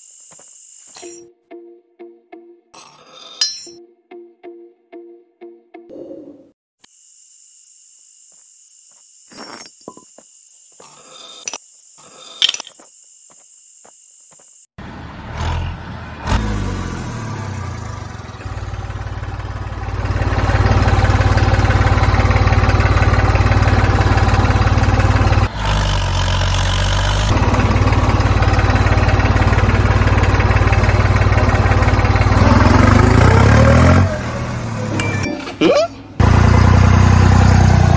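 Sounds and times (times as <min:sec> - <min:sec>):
low engine-like running: 0:14.8 - 0:35.0, 0:36.2 - 0:37.9.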